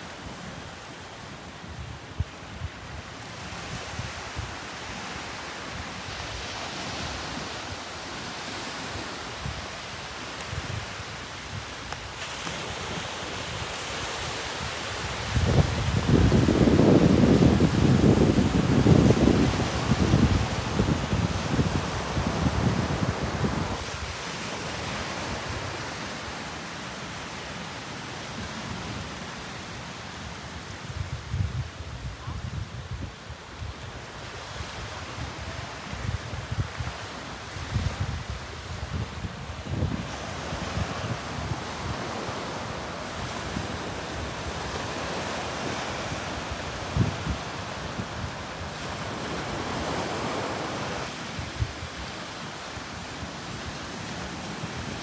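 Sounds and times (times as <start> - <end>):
small waves breaking on shore: 0.0 - 55.0
wind on microphone: 1.6 - 26.2, 30.6 - 55.0
wind buffeting microphone: 15.0 - 24.0, 34.5 - 42.6, 45.6 - 50.0.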